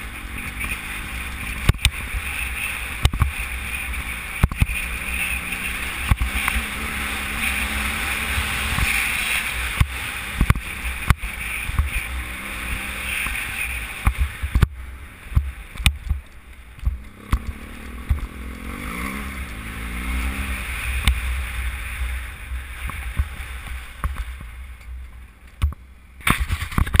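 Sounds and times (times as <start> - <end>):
motorcycle engine running: 0.0 - 27.0
sharp knocks from rough ground: 1.5 - 4.9, 5.8 - 6.7, 9.7 - 12.1, 14.0 - 18.4, 22.8 - 24.9, 25.5 - 27.0.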